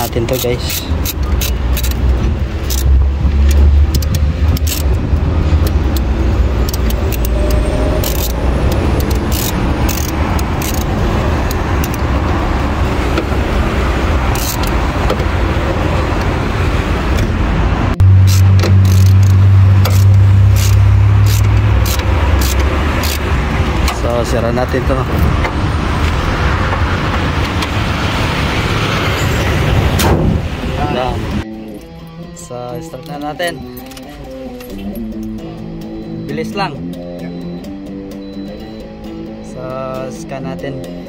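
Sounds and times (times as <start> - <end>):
ratchet clicking on bolt: 0.0 - 12.1, 14.3 - 14.8, 18.2 - 24.0.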